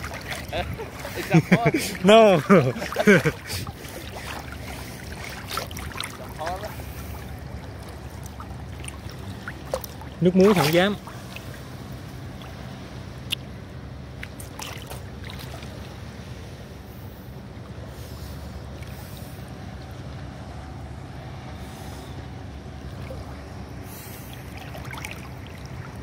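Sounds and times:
sharp water splashes: 0.0s - 16.3s, 21.6s - 26.0s
seawater lapping and splashing: 0.0s - 26.0s
steady low hum: 0.0s - 26.0s.

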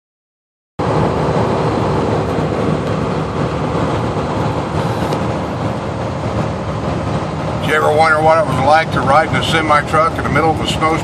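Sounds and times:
truck engine and road noise: 0.8s - 11.0s.

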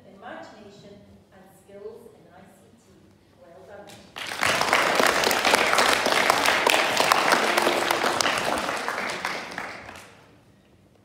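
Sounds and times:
audience clapping: 4.0s - 10.3s.

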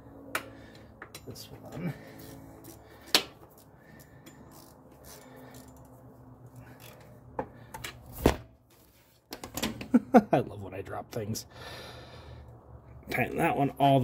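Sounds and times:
metal tools clinking: 4.1s - 5.9s.

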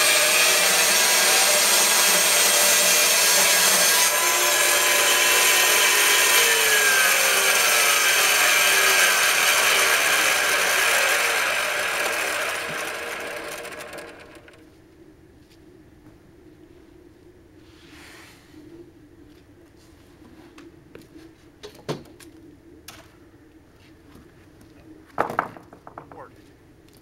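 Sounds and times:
bandsaw cutting log: 0.0s - 14.6s.

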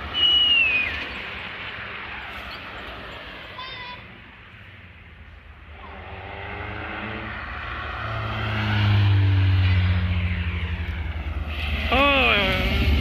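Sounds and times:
rally car passing at speed: 5.0s - 13.0s
rally car engine revving hard: 11.4s - 13.0s.

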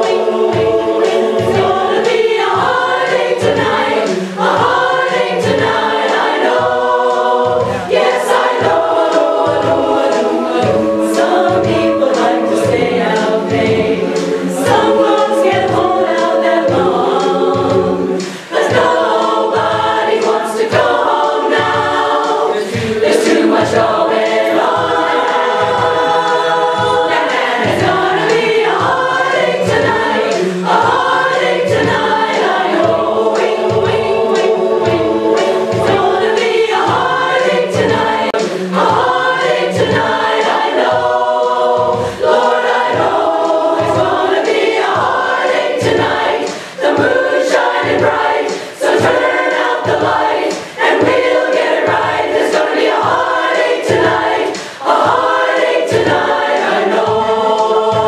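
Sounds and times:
women's choir singing: 0.0s - 58.0s
singers breathing: 18.2s - 18.6s, 22.6s - 23.0s, 46.5s - 46.8s, 48.6s - 48.8s, 54.6s - 54.8s.

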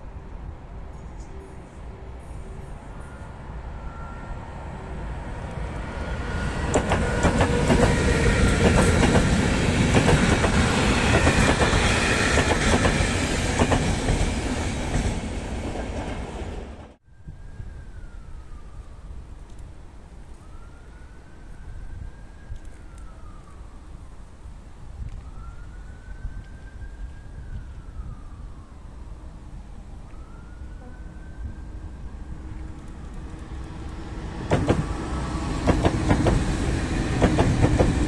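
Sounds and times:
train passing with rumble: 0.0s - 17.0s, 27.0s - 38.0s
faint siren wailing: 1.3s - 13.4s, 17.0s - 37.2s.

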